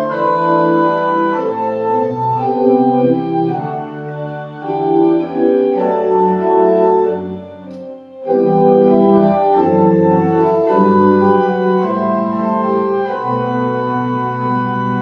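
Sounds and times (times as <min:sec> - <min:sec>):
pipe organ chords: 0:00.0 - 0:15.0
deep organ bass note: 0:09.4 - 0:11.6.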